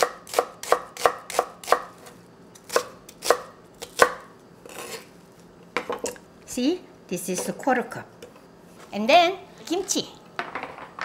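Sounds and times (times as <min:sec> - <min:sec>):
knife chopping on wooden board: 0:00.0 - 0:01.9.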